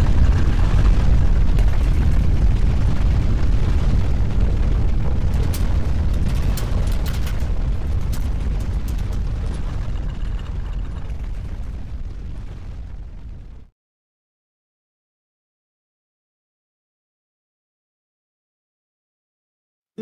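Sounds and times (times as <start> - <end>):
deep earthquake rumble: 0.0 - 13.7.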